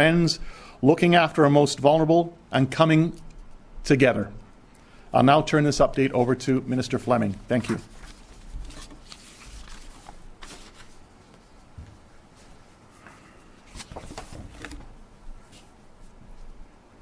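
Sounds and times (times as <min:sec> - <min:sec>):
papers being handled: 0:06.9 - 0:11.5, 0:13.6 - 0:15.8
footsteps: 0:07.5 - 0:16.6.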